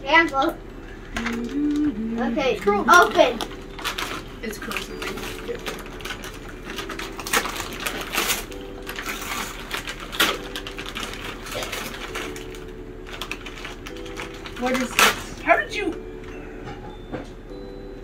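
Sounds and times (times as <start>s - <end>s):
wrapping paper rustling: 2.5s - 16.0s.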